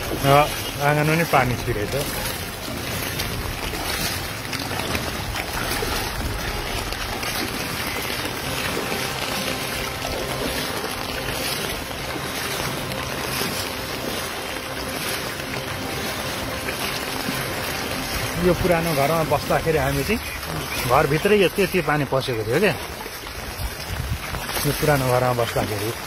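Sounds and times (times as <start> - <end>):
floodwater rushing: 0.0 - 26.0.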